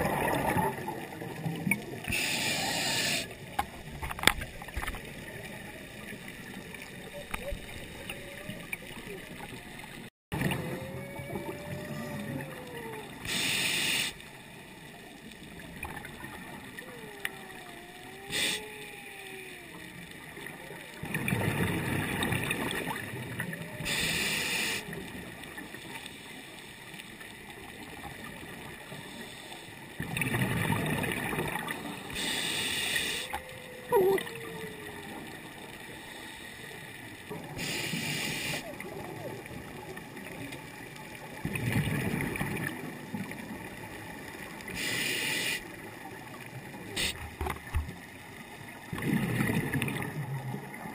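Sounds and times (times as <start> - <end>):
exhaled bubbles rushing: 0.0 - 2.1, 20.4 - 24.0, 30.0 - 32.2, 48.9 - 50.9
regulator inhale hiss: 2.1 - 3.4, 13.2 - 14.3, 18.3 - 18.8, 23.9 - 25.0, 28.9 - 29.8, 32.1 - 33.3, 35.9 - 36.9, 37.6 - 38.6, 44.7 - 45.8.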